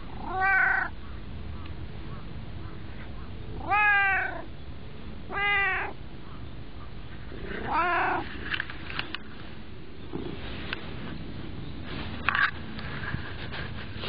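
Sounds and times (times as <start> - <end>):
cat meowing: 0.1 - 0.9, 3.6 - 4.5, 5.3 - 6.0, 7.6 - 8.3.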